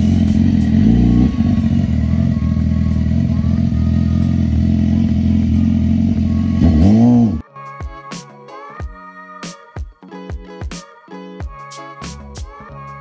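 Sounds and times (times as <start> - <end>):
motorcycle engine idling: 0.0 - 7.4.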